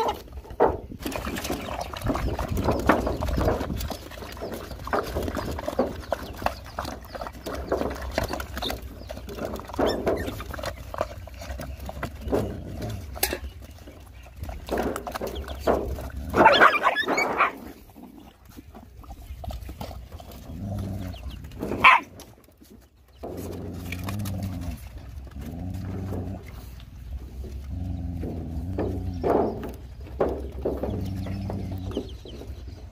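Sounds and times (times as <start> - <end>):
dogs lapping and chewing: 0.0 - 32.9
dog yelping: 16.4 - 17.6, 21.8 - 22.1
dog snarling: 19.8 - 22.1.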